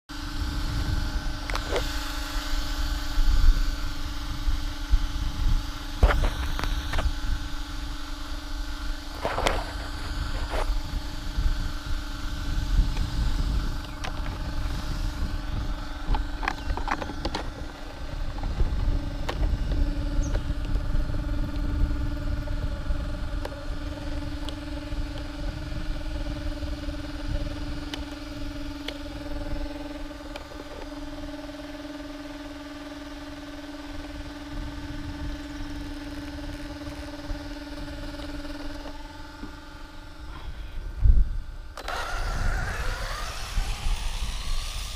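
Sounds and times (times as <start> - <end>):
steady low hum: 0.1 - 44.9
wind buffeting microphone: 0.2 - 31.8, 34.0 - 44.9
scattered clicks and knocks: 16.1 - 20.8.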